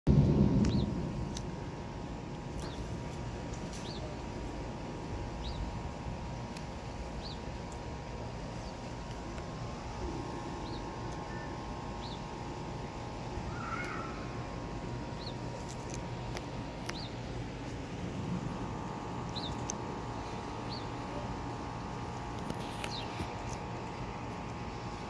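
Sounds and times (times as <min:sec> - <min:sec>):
thunder rolling: 0:00.1 - 0:03.5
low rumble of outdoor air: 0:00.1 - 0:25.0
bird chirping: 0:00.6 - 0:01.0, 0:03.8 - 0:04.1, 0:05.4 - 0:05.7, 0:07.1 - 0:07.6, 0:10.5 - 0:12.4, 0:13.5 - 0:14.4, 0:15.0 - 0:15.6, 0:16.8 - 0:17.2, 0:19.2 - 0:21.2, 0:22.7 - 0:23.3.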